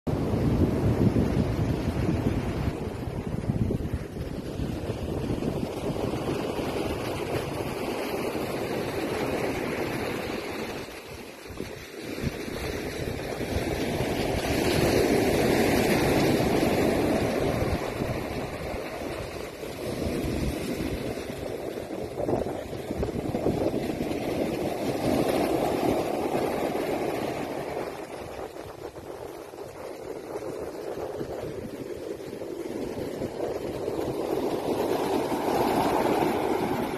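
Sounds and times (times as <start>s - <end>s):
surf washing on pebble beach: 0.1s - 36.9s
wind buffeting microphone: 0.1s - 36.9s.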